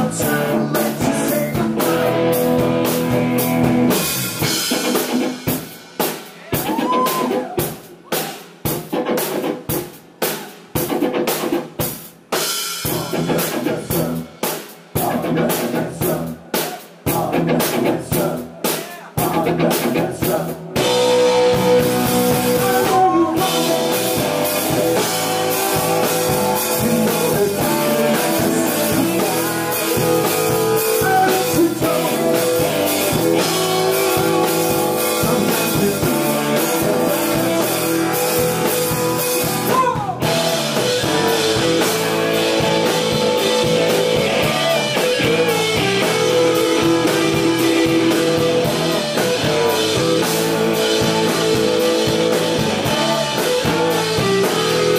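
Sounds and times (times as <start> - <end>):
electric guitars: 0.0 - 5.8, 19.3 - 54.9
steady drumming: 0.0 - 54.9.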